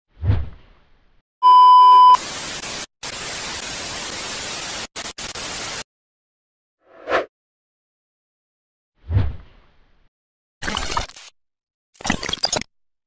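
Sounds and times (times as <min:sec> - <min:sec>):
high test-tone beep: 0:01.4 - 0:02.2.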